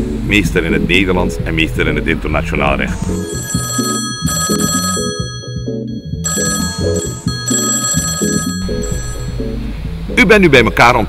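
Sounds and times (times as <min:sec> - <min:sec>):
background music with repeating chords: 0:03.0 - 0:10.3
telephone ringing: 0:03.1 - 0:09.5.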